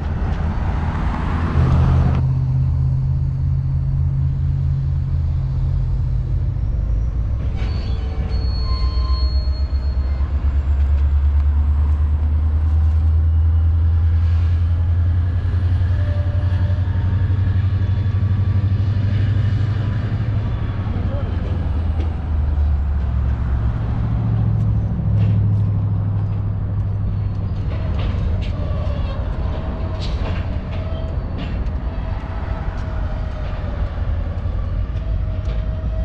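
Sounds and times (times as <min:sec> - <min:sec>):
diesel locomotive engine droning: 0:00.0 - 0:36.0
wheel squeal: 0:06.6 - 0:11.9, 0:26.4 - 0:36.0.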